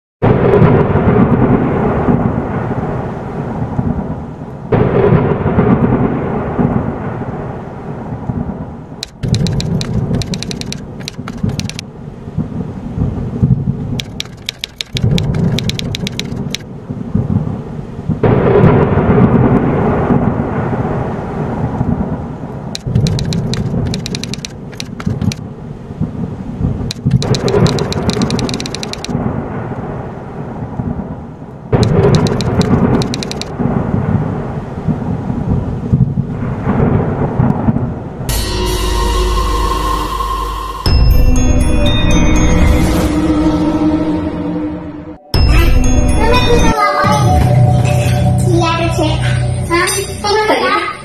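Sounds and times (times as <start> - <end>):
rumbling thunder: 0.2 - 38.6
rain: 0.2 - 39.1
crisp clicking: 9.0 - 11.8, 14.0 - 16.6, 26.9 - 29.1.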